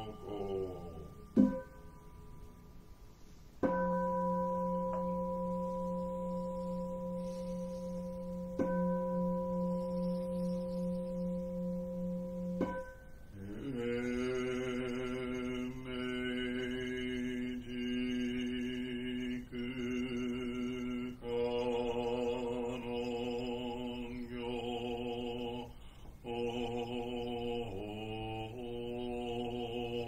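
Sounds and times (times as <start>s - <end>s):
man chanting in monotone: 0.0s - 1.5s, 13.3s - 30.0s.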